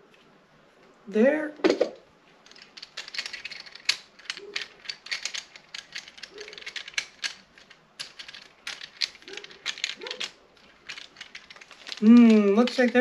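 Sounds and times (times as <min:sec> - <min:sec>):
tripod head clicking and rattling: 0:01.6 - 0:13.0.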